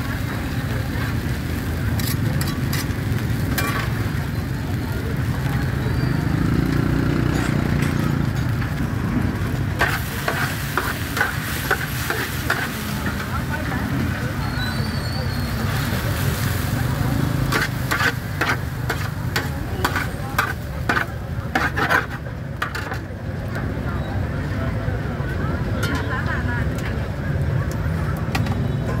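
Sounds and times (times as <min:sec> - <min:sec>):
food sizzling in a pan: 0:00.0 - 0:23.0.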